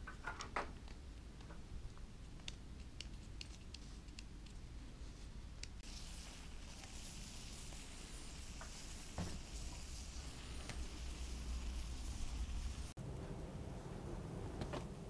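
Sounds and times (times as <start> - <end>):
aerosol foam hissing: 5.0 - 13.0.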